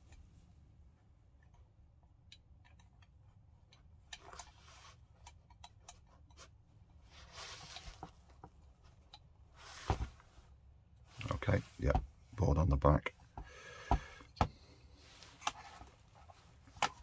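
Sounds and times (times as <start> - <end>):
rustling handling noise: 6.4 - 12.3, 14.9 - 17.0.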